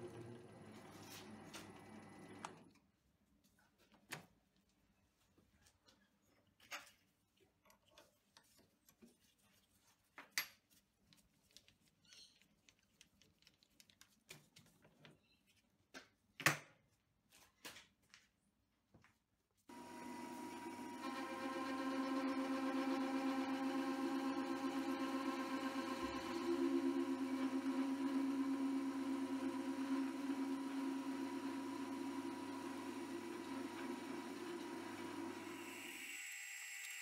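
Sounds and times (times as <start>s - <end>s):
lathe running: 19.7s - 37.0s.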